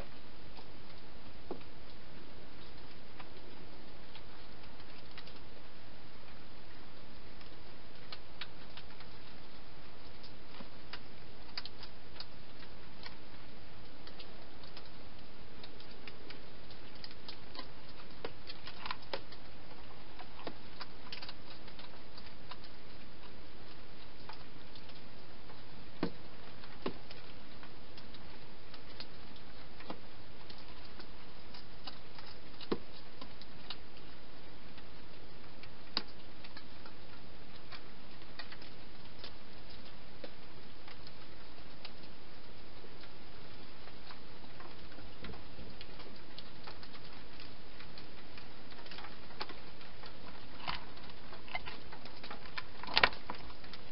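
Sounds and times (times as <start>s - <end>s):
steady hiss: 0.0s - 53.9s.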